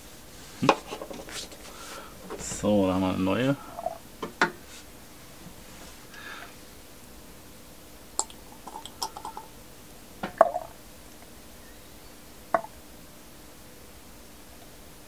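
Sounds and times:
pipette clicking in wooden barrel: 8.2s - 9.5s.

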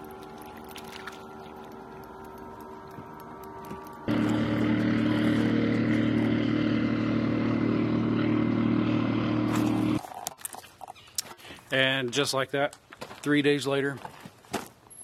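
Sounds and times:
engine running steadily: 0.0s - 10.0s.

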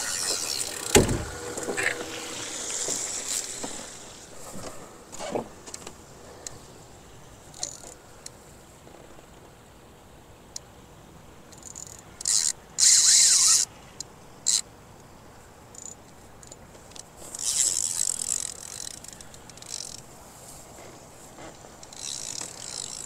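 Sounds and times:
fishing reel whirring: 0.0s - 4.3s, 11.6s - 13.7s, 17.3s - 20.0s, 21.8s - 23.0s.

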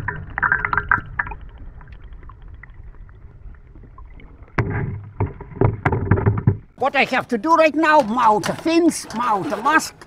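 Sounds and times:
air bubbles fizzing underwater: 0.0s - 5.6s
dull low underwater rumble: 0.0s - 6.8s.

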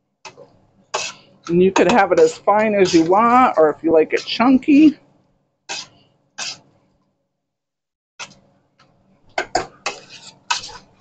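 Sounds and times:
masher squishing apples: 1.0s - 5.0s.

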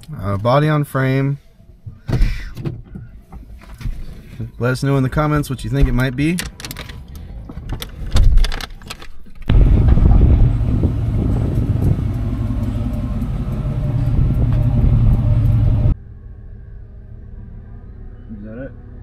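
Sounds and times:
vehicle engine and road rumble: 1.5s - 17.6s
wind on microphone: 9.5s - 16.0s.

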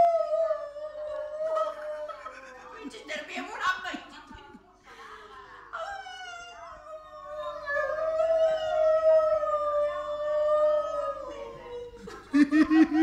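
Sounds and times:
dog howling: 0.0s - 2.4s, 6.2s - 12.0s.

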